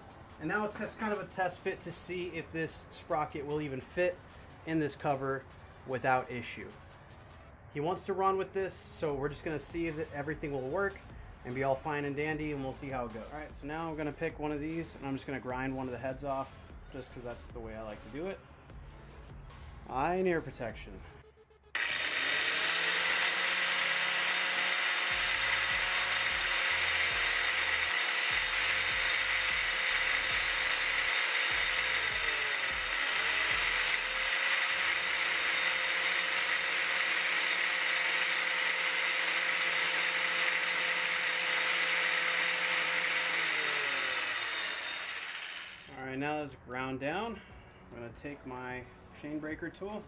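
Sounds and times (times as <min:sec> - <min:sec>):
angle grinder grinding steel: 0:21.8 - 0:46.0.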